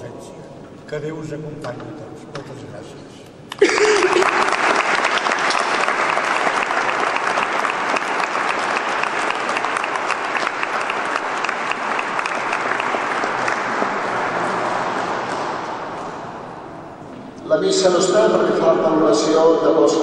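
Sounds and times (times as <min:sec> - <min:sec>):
crowd clapping: 0:03.5 - 0:16.4.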